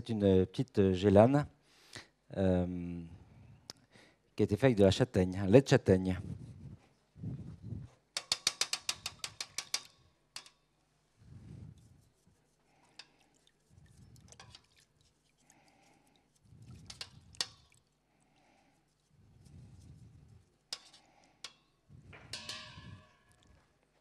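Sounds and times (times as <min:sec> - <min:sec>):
kitchen utensils and dishes clattering: 0:08.2 - 0:10.5, 0:22.2 - 0:23.6.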